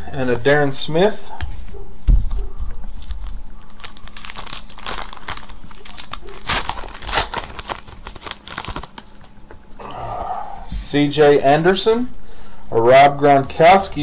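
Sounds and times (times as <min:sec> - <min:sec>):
foil wrapper crinkling and tearing: 0:02.9 - 0:09.4.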